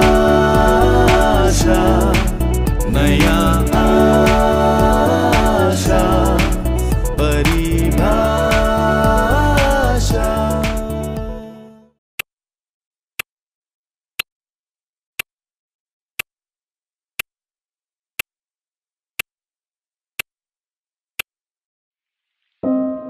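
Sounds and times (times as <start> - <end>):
dance music: 0.0 - 11.5, 22.6 - 23.0.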